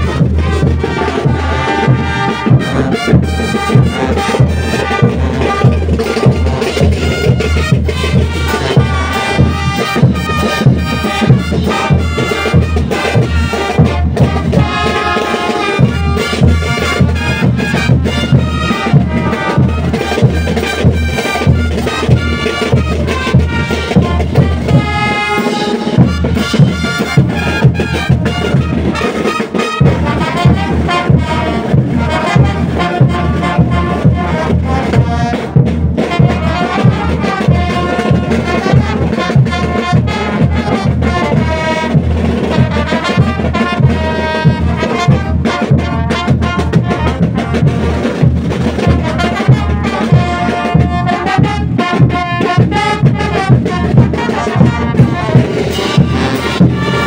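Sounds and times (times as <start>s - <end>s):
brass band playing: 0.0s - 57.0s.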